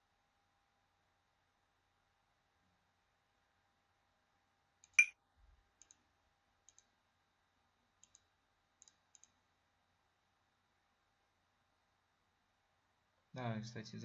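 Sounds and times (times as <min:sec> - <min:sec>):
computer mouse clicks: 0:05.8 - 0:06.0, 0:06.6 - 0:06.9, 0:08.0 - 0:09.4.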